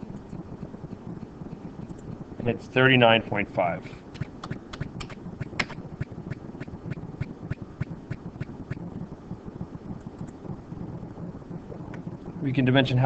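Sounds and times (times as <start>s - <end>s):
low room rumble: 0.0s - 13.0s
light regular clicks: 1.2s - 2.2s, 10.0s - 10.4s.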